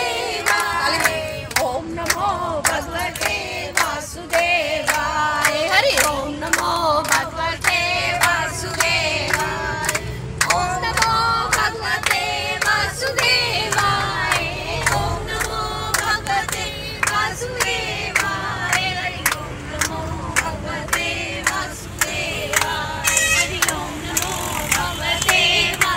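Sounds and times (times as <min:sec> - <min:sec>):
bus engine and road rumble: 0:00.0 - 0:25.9
hands clapping in rhythm: 0:00.0 - 0:25.9
women singing together: 0:00.0 - 0:25.9.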